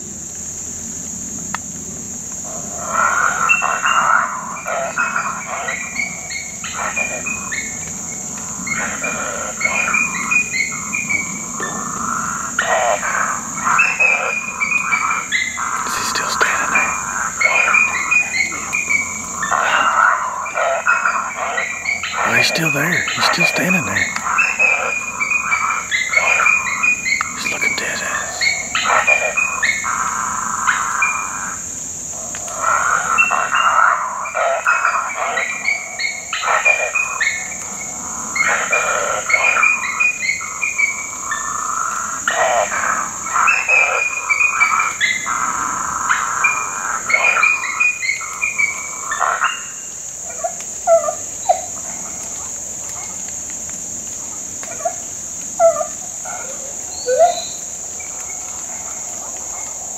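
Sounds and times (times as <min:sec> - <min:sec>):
high insect chorus: 0:00.0 - 0:59.9
electronic predator calls: 0:15.6 - 0:17.9, 0:22.1 - 0:24.4, 0:27.3 - 0:29.1.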